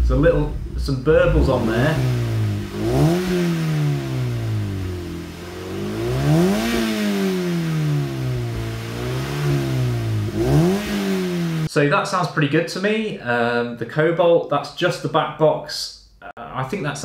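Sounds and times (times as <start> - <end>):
car engine revving: 0.0 - 11.7.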